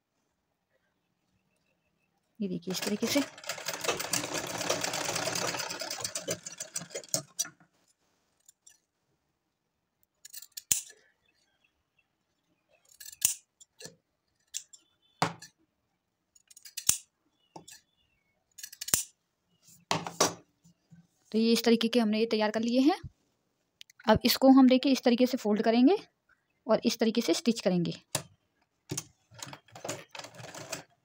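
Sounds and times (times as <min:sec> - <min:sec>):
sewing machine stitching: 0:02.6 - 0:07.6, 0:29.3 - 0:31.0.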